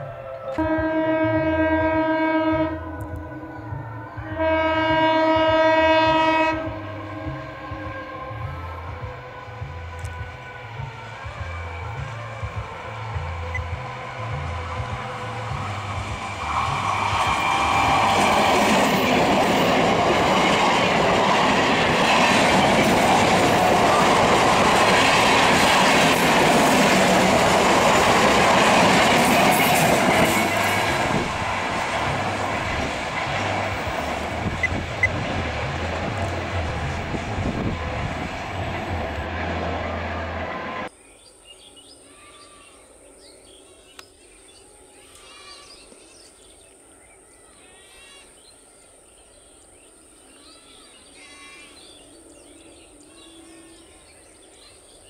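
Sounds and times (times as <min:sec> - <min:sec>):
trains passing at speed: 0:00.0 - 0:40.9
wheels clacking on rail: 0:05.0 - 0:40.9.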